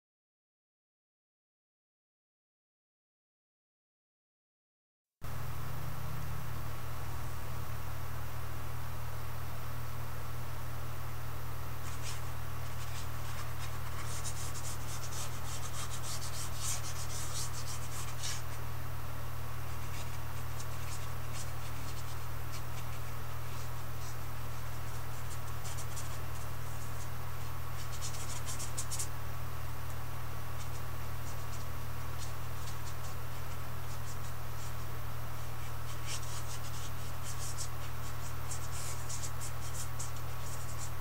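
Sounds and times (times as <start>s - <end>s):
steady low hum: 5.2s - 41.0s
paintbrush scratching on canvas: 11.8s - 18.6s, 19.6s - 29.2s, 30.5s - 41.0s.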